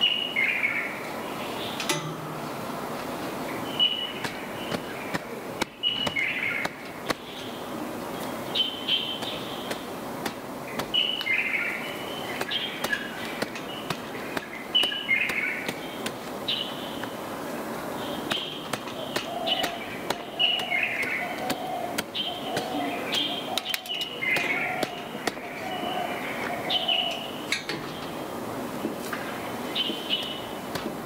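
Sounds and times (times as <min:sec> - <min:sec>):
lower repeated bird call: 0:00.0 - 0:27.6
birds chirping: 0:00.0 - 0:31.0
quilts beaten with sharp slaps: 0:04.0 - 0:07.5, 0:09.1 - 0:11.4, 0:12.3 - 0:17.2, 0:18.2 - 0:25.6, 0:30.7 - 0:31.0.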